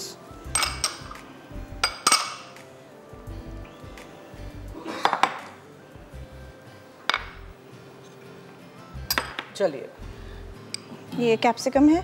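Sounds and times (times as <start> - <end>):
faint background music: 0.0 - 12.0
utensils clinking against dishes: 0.4 - 1.2, 1.8 - 2.6.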